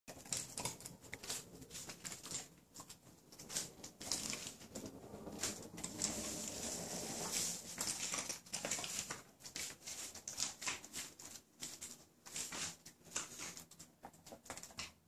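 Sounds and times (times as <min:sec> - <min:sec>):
dog claws clicking on wood: 0:00.1 - 0:06.3, 0:07.8 - 0:15.0.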